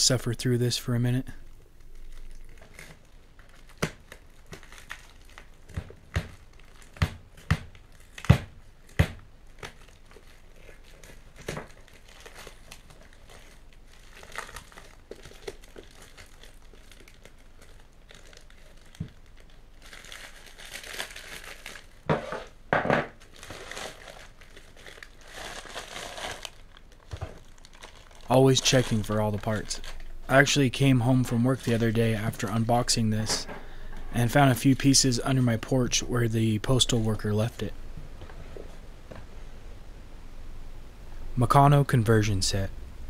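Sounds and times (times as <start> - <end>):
paper crinkling: 1.7 - 22.6, 23.2 - 35.6.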